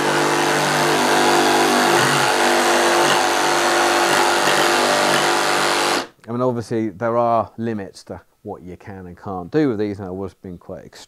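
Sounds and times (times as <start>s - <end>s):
jigsaw cutting wood: 0.0s - 6.1s.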